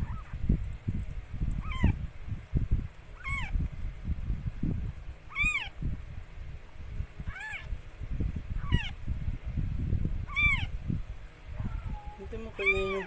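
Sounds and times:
kittens mewing: 0:03.2 - 0:03.6, 0:07.3 - 0:07.7, 0:10.3 - 0:10.7.

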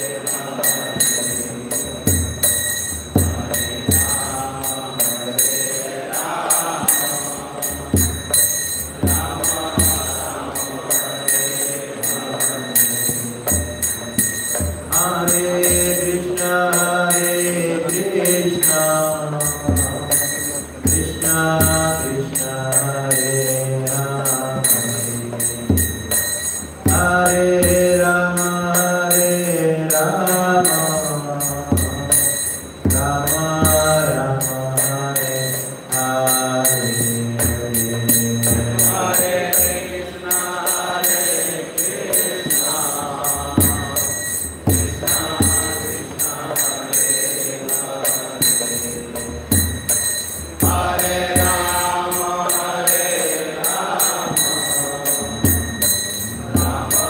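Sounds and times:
hand cymbals struck in rhythm: 0:00.0 - 0:57.0
man singing long held notes: 0:03.3 - 0:25.9.

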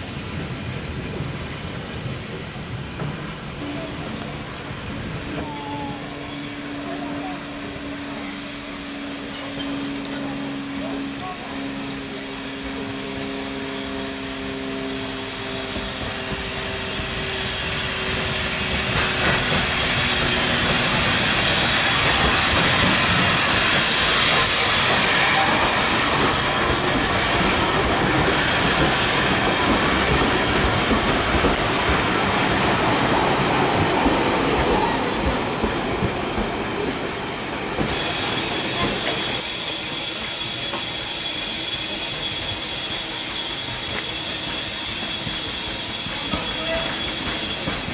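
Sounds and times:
train wheels rumbling on rails: 0:00.0 - 0:47.9
steam engine passing: 0:03.5 - 0:47.9
steam hiss: 0:16.9 - 0:47.9.

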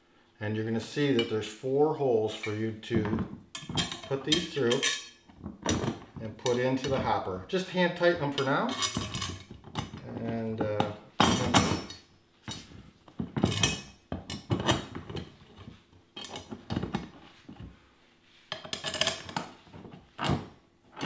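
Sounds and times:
steel tubing and bolts clinking: 0:02.3 - 0:07.3, 0:08.2 - 0:15.3, 0:16.2 - 0:17.0, 0:18.5 - 0:19.5.

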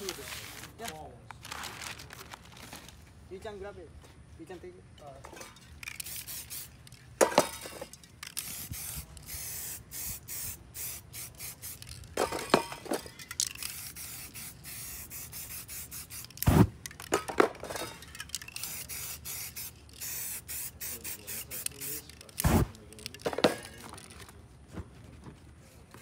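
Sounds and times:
spray paint can hissing: 0:05.8 - 0:17.4, 0:18.0 - 0:23.8.

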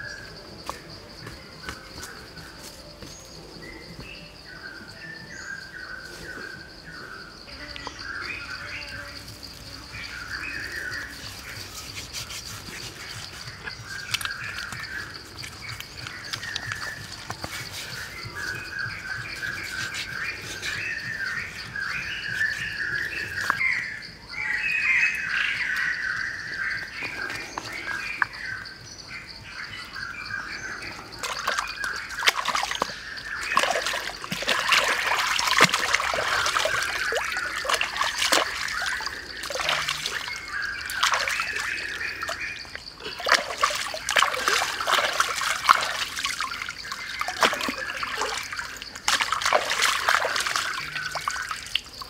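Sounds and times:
birds chirping: 0:00.0 - 0:52.0
water splashing and sloshing: 0:09.4 - 0:23.6, 0:31.1 - 0:52.0.

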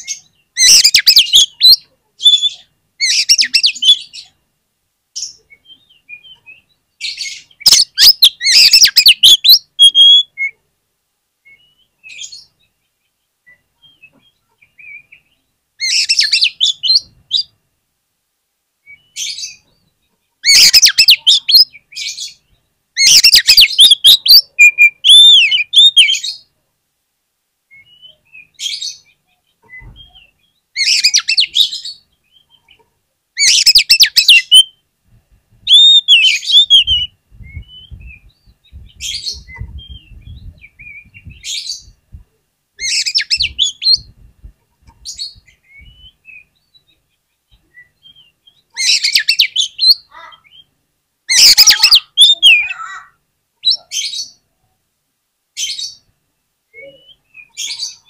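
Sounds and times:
bird singing whistles and chatter: 0:00.0 - 0:04.2, 0:05.5 - 0:10.6, 0:20.5 - 0:22.3, 0:23.0 - 0:26.4, 0:27.7 - 0:32.7, 0:33.4 - 0:34.8, 0:35.7 - 0:42.0, 0:42.8 - 0:44.1, 0:47.5 - 0:50.7, 0:51.3 - 0:53.0.

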